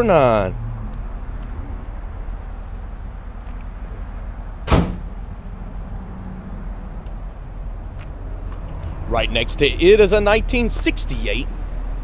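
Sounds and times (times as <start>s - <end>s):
steady low rumble: 0.0s - 12.0s
sharp thump: 4.6s - 5.2s.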